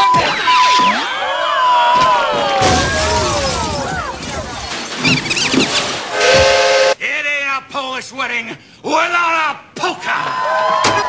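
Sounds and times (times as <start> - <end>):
table breaking and shattering: 2.6 - 6.2.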